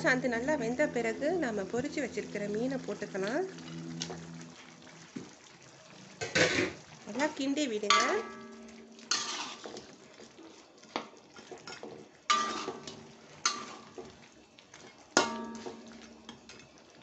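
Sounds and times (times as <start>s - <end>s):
spatula stirring food in a wok: 0.0s - 17.0s
metal spatula clinking on wok: 7.8s - 9.6s, 11.7s - 13.9s, 15.2s - 16.7s.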